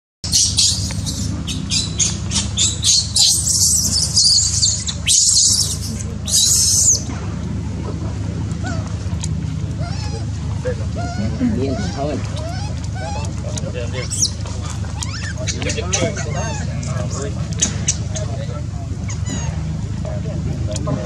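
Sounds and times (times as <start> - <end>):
baby monkey squealing and screaming: 0.3 - 7.1, 11.0 - 13.3, 14.0 - 14.4, 15.0 - 16.7, 19.1 - 19.6.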